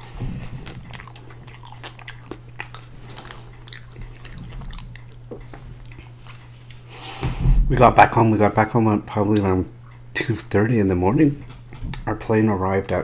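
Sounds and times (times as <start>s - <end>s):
steady low hum: 0.0s - 13.0s
mouth chewing with clicks: 0.4s - 6.8s.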